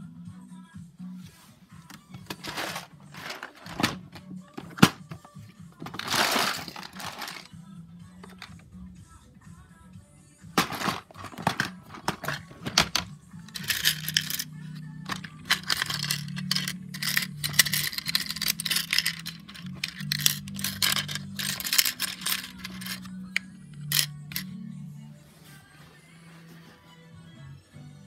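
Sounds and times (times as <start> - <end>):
plastic pieces clattering: 1.9 - 7.5, 8.2 - 8.5, 10.6 - 24.4.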